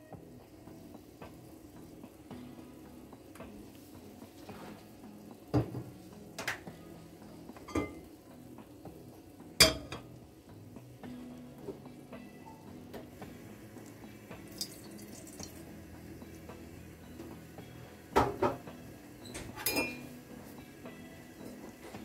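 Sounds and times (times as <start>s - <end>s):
kitchenware knocking and clinking: 5.5s - 6.6s, 7.6s - 8.0s, 9.6s - 10.1s, 18.1s - 18.6s, 19.4s - 20.0s.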